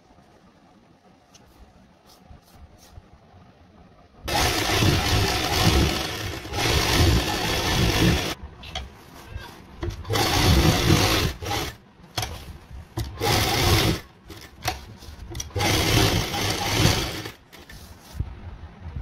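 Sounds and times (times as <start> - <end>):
sewing machine stitching: 4.3 - 8.4, 9.8 - 12.4, 13.0 - 17.8.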